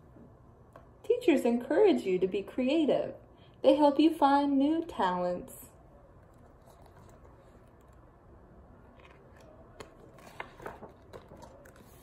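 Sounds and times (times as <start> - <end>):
book page turning: 6.2 - 8.1, 8.8 - 12.0.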